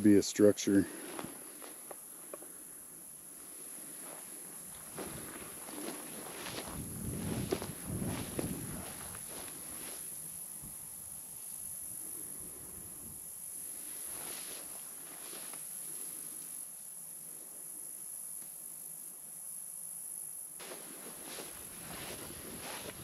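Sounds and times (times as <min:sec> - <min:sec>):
insects buzzing: 0:00.0 - 0:23.0
footsteps through tall grass: 0:00.9 - 0:02.0, 0:03.3 - 0:10.4, 0:13.8 - 0:16.0, 0:20.6 - 0:23.0.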